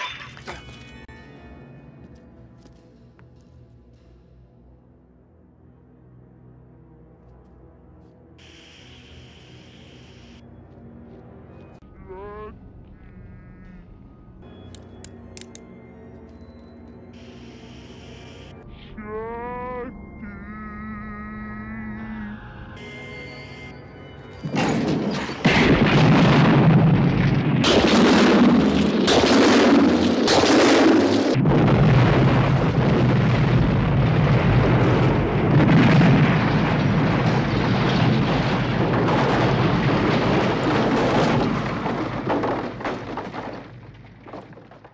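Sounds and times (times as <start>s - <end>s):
rumble of fire and wreckage: 24.4s - 44.9s
heavy explosion blasts: 24.8s - 43.8s.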